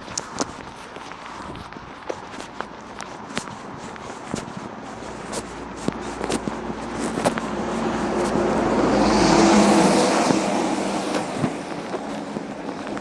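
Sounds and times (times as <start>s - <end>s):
footsteps on pavement: 0.0s - 13.0s
lorry driving past: 7.4s - 12.6s.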